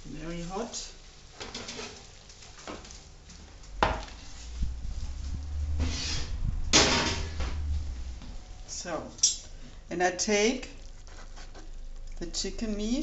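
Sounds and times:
low rumble: 4.3 - 8.7.

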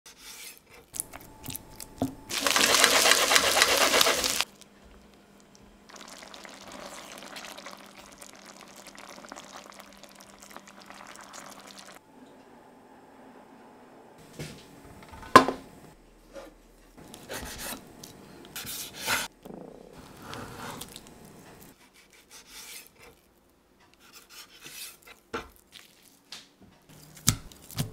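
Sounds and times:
curry simmering: 5.9 - 12.0
spatula stirring in a pan: 24.0 - 26.0.

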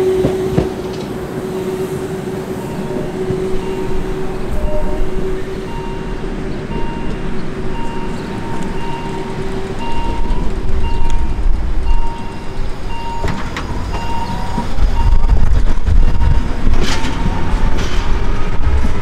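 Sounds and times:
electric train rumbling: 0.0 - 19.0
electronic warning signal beeping: 2.6 - 15.4.

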